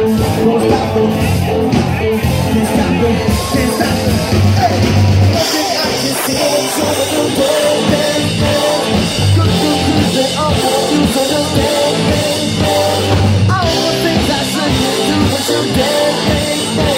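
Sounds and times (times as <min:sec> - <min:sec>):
bass guitar: 0:00.0 - 0:16.9
electric guitar: 0:00.0 - 0:16.9
person singing: 0:00.0 - 0:16.9
steady drum beat: 0:00.0 - 0:16.9.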